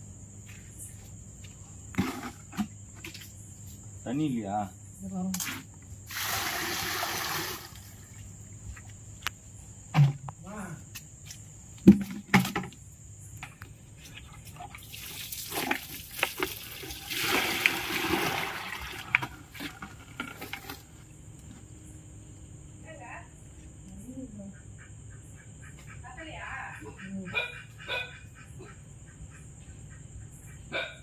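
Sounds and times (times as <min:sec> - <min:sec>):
water splashing from bucket: 0:06.1 - 0:08.2, 0:14.1 - 0:20.8.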